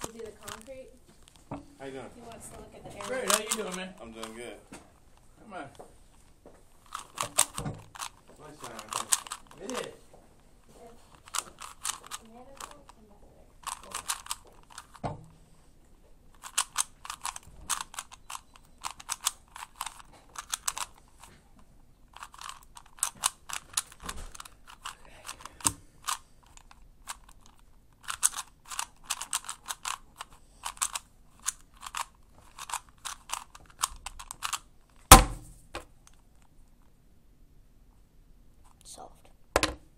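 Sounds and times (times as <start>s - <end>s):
puzzle cube layers clicking: 3.0s - 4.3s, 6.8s - 9.9s, 11.1s - 12.8s, 13.6s - 15.0s, 16.3s - 21.2s, 22.1s - 34.6s.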